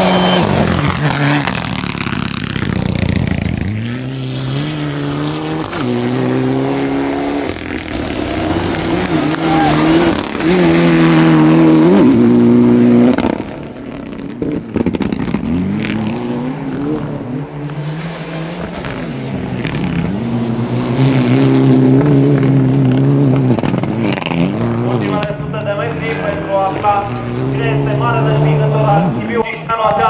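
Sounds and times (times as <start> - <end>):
exhaust cracks: 0.0 - 4.0, 7.4 - 16.2, 21.2 - 30.0
rally car engine revving: 0.0 - 30.0.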